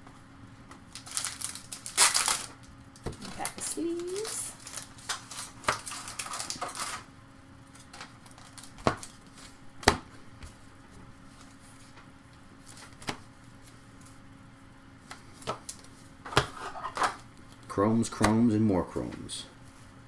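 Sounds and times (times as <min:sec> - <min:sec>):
trading cards sliding and rustling: 0:15.1 - 0:17.2.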